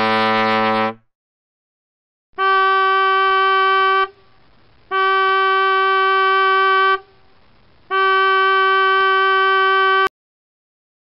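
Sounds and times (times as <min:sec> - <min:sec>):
boat horn blasts: 0:00.0 - 0:01.0, 0:02.4 - 0:04.2, 0:04.9 - 0:07.1, 0:07.9 - 0:10.1.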